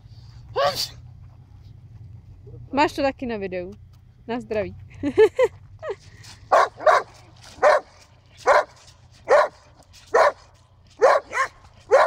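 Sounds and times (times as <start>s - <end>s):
dog barking: 6.5s - 12.0s.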